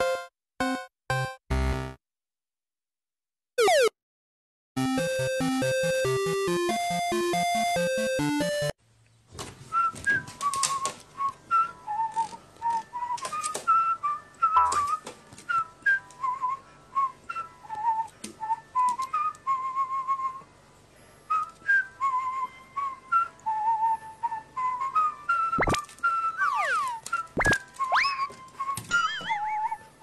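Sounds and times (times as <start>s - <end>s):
whistled tune: 9.7s - 20.5s, 21.3s - 30.0s.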